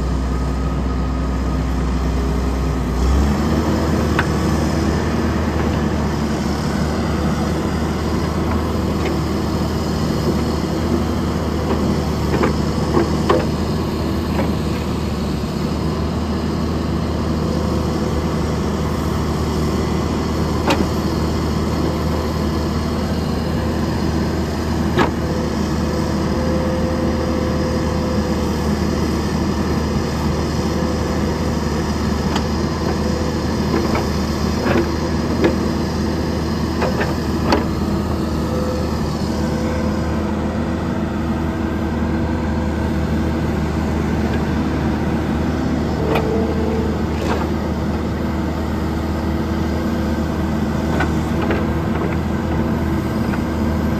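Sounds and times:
diesel engine running under load: 0.0s - 53.9s.

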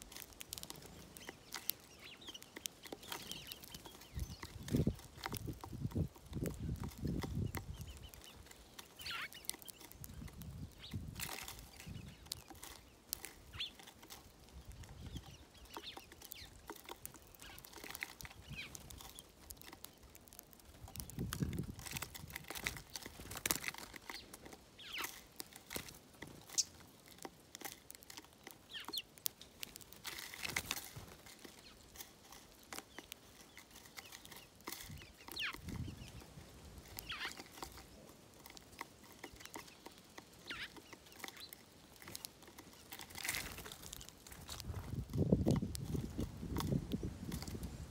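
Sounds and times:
beaks pecking seed on wood: 0.0s - 47.9s
sparrows chirping: 0.0s - 47.9s
low-pitched bird calls: 32.9s - 38.1s, 39.2s - 42.9s.

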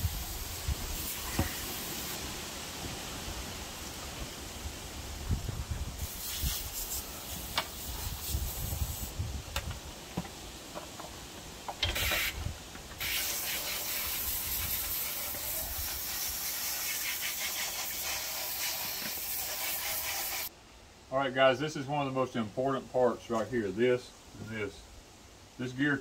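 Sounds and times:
hose spraying water: 0.0s - 5.0s, 5.9s - 9.2s, 11.7s - 20.5s.

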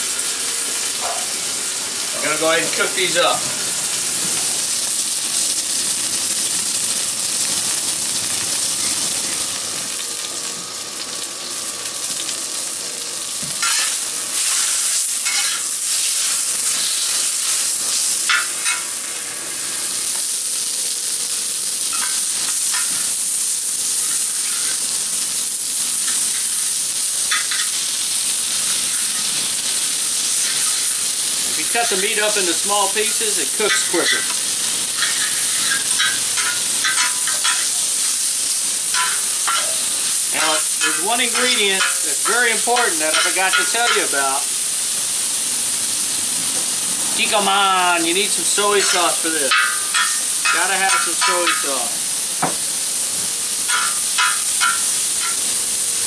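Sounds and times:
pork sizzling in a wok: 0.0s - 56.0s
stirring clatters: 48.8s - 51.8s.

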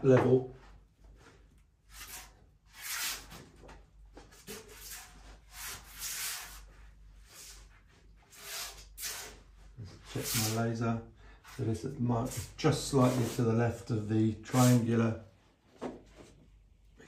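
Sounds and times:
hands rubbing wallpaper: 10.1s - 10.6s, 12.2s - 13.5s.

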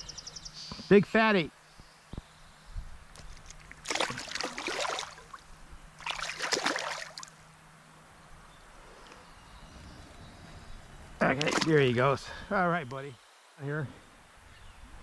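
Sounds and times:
fish splashing in water: 3.5s - 7.4s, 11.3s - 11.8s.

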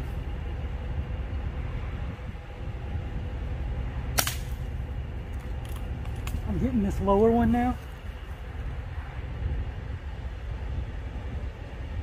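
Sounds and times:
low background rumble: 0.0s - 12.0s
air rifle shot crack: 4.1s - 4.7s.

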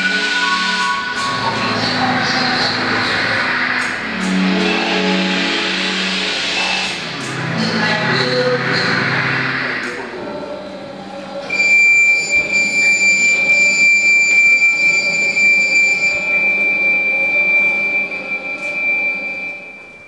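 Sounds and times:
high steady tone: 0.0s - 3.6s, 11.5s - 20.0s.

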